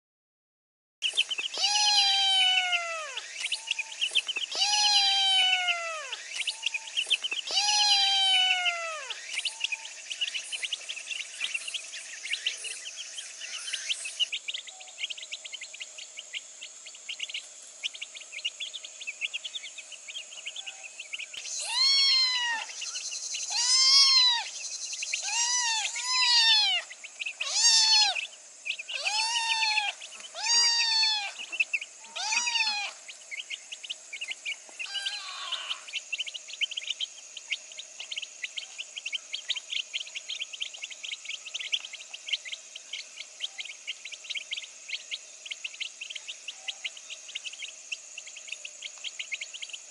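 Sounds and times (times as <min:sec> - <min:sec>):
high fast chirping: 0:01.0 - 0:20.2, 0:21.2 - 0:43.2
kitten meowing: 0:01.6 - 0:03.2, 0:04.5 - 0:06.2, 0:07.5 - 0:09.2, 0:21.5 - 0:22.7, 0:23.5 - 0:24.5, 0:25.2 - 0:28.2, 0:28.9 - 0:31.4, 0:32.1 - 0:33.0, 0:34.8 - 0:35.8.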